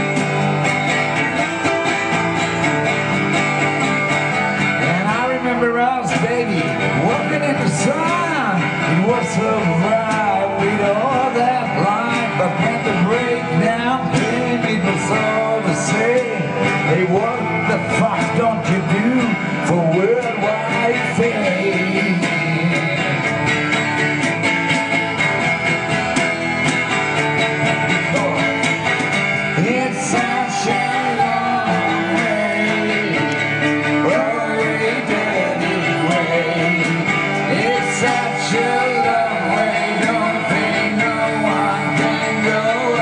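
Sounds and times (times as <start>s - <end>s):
acoustic guitar strummed: 0.0s - 43.0s
woman singing: 29.6s - 33.4s.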